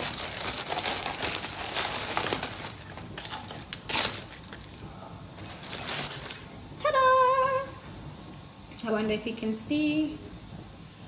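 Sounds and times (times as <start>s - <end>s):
packing paper rustling: 0.0s - 6.6s.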